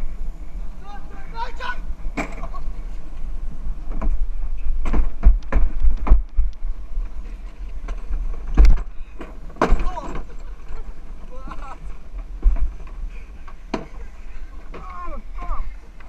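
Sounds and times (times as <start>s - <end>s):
wheels rumbling on concrete: 0.0s - 16.0s
wind on microphone: 1.8s - 9.6s
cart jolting knocks: 7.8s - 10.8s.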